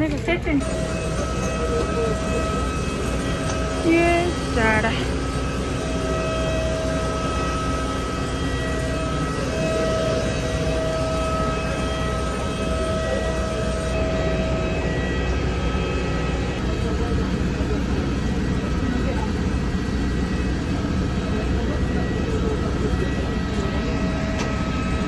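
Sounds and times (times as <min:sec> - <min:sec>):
bus interior rumble: 0:00.0 - 0:05.1
steady whine: 0:00.0 - 0:25.0.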